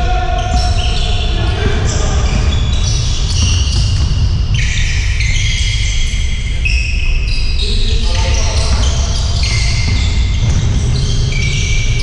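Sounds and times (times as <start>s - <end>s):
sneakers squeaking on gym floor: 0.3s - 12.0s
basketball bouncing: 0.4s - 5.8s, 8.2s - 12.0s
low thudding: 8.6s - 12.0s.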